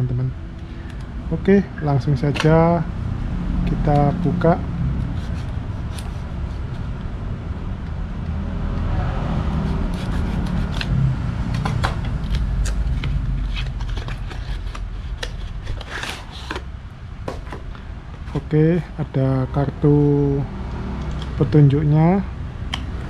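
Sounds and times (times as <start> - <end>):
steady low hum: 0.0 - 23.0
packaging clicks and scrapes: 10.0 - 16.7.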